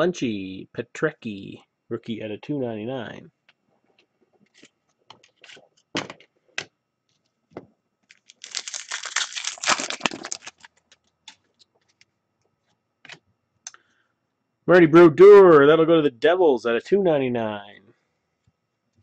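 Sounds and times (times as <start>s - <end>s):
wrapper tearing and crinkling: 8.1s - 11.4s.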